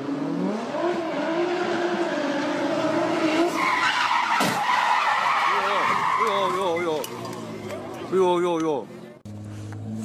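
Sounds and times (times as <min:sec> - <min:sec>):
tyres squealing: 0:03.5 - 0:08.0.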